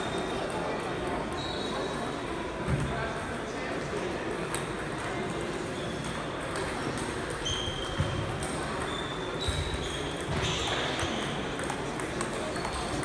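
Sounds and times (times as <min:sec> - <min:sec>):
short high squeaks: 0:01.3 - 0:02.0, 0:07.4 - 0:08.0
ping-pong balls hitting bats: 0:04.0 - 0:13.0.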